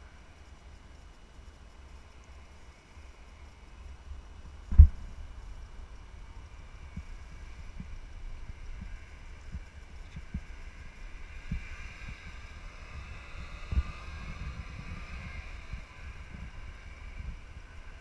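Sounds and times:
distant snowmobile engines droning: 0.0s - 18.0s
wind buffeting microphone: 4.5s - 18.0s.

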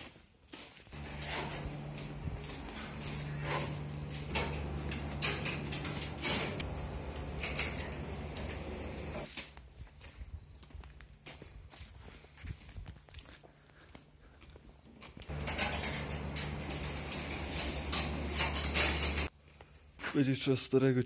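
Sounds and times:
low machine hum: 1.0s - 9.3s.

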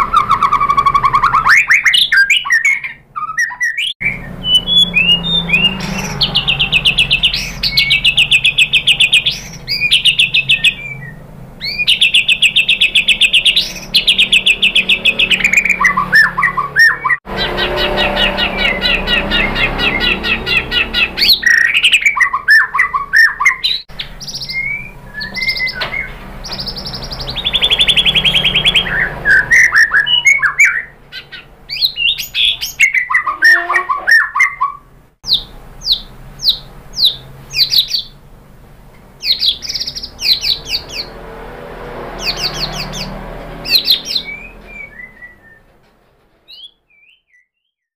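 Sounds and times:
bird singing whistles and trills: 0.0s - 38.2s, 39.2s - 41.2s, 42.2s - 45.7s, 46.5s - 47.9s.

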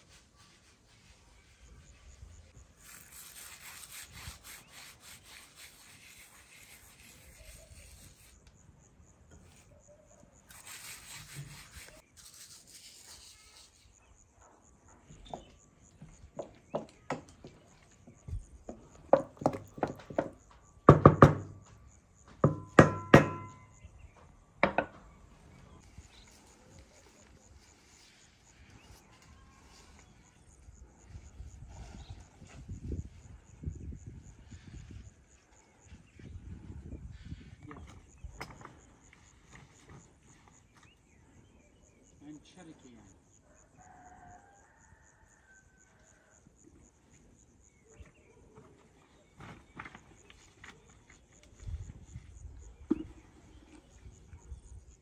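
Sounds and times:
sharp knocks and thuds: 18.2s - 23.7s.

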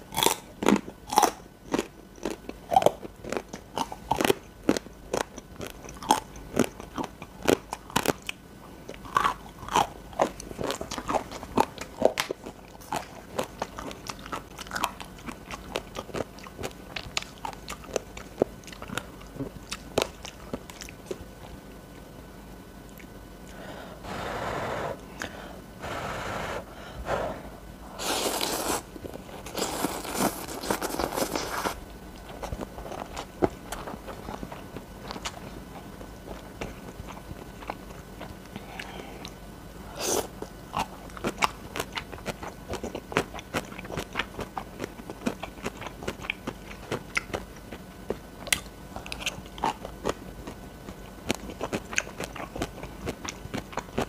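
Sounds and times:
chewing crunchy crisps: 0.0s - 22.1s, 28.0s - 54.0s
noodle slurping: 25.8s - 31.8s.

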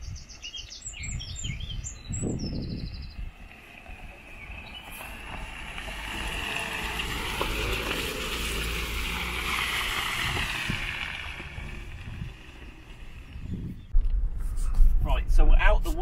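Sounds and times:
vehicle engine: 3.0s - 14.5s
tyres through wet mud: 3.3s - 13.6s.

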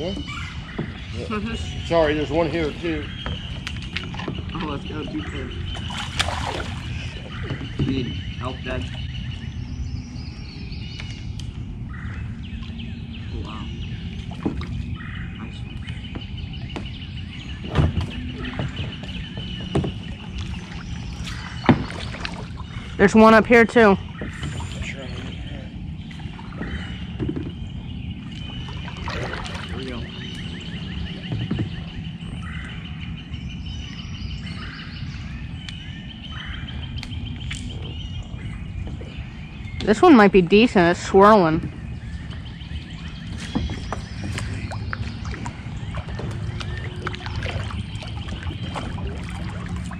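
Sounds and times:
birds calling: 0.0s - 49.9s
wind rumble on microphone: 0.0s - 49.9s
knocks against kayak: 21.6s - 22.3s.

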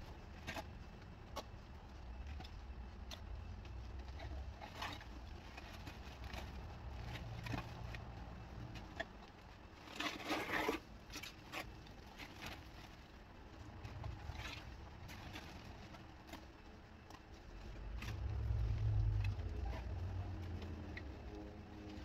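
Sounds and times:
debris scraping and clattering: 9.8s - 12.9s.

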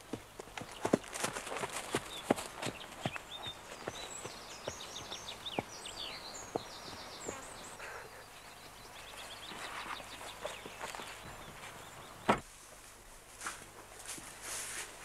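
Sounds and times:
horse hooves on grass: 0.0s - 7.8s, 8.6s - 15.0s
small bird chirping: 0.6s - 12.3s.

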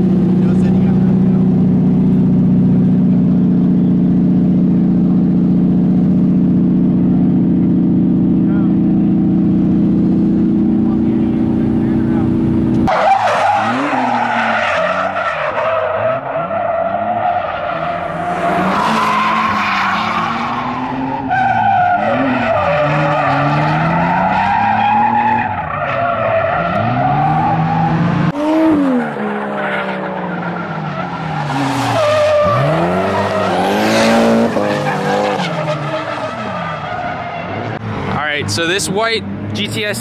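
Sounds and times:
car engines revving: 0.0s - 40.0s
tyres screeching: 12.8s - 28.0s.

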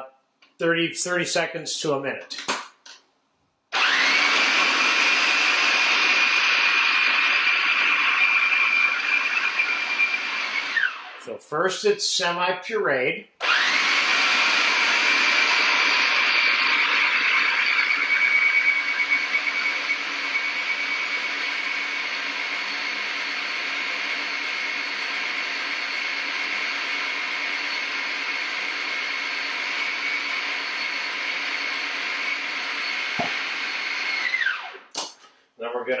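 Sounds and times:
food processor motor running: 3.7s - 11.2s, 13.4s - 34.9s.

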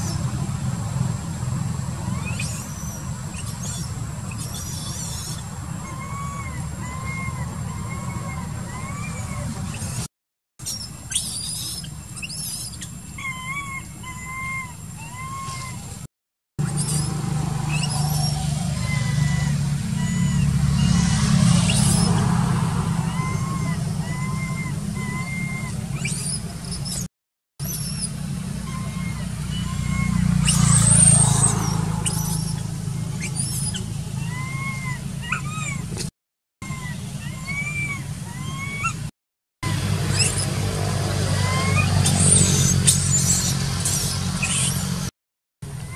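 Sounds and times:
high squeaky chirps: 2.0s - 15.9s, 16.6s - 22.4s, 23.0s - 39.1s, 40.1s - 40.6s, 41.4s - 45.1s
short whistled animal calls: 2.1s - 15.9s, 23.0s - 35.8s, 41.4s - 44.9s.

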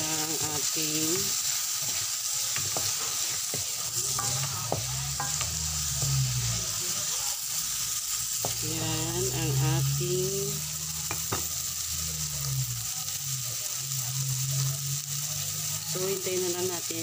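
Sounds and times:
shrimps sizzling in a pan: 0.0s - 17.0s
spatula scraping a metal pan: 0.3s - 9.8s.

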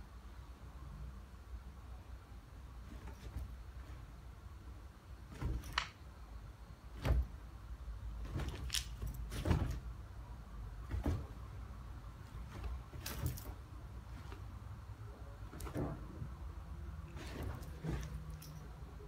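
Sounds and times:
bedding rustling: 2.6s - 19.0s
dogs thumping on couch: 5.3s - 5.8s, 7.0s - 7.4s, 8.2s - 9.9s, 10.8s - 11.6s, 12.2s - 13.6s, 15.5s - 16.2s, 17.1s - 18.6s.

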